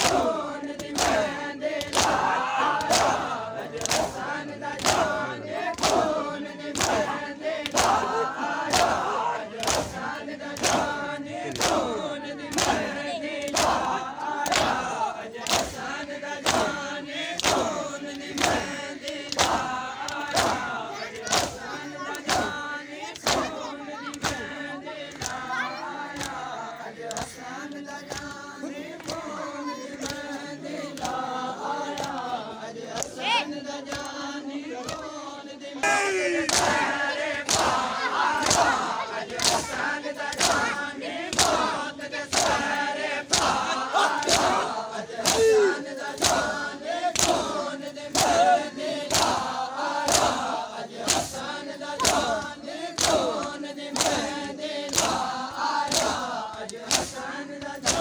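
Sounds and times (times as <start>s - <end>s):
crowd of men chanting: 0.0s - 58.0s
hands beating chests: 35.8s - 39.7s.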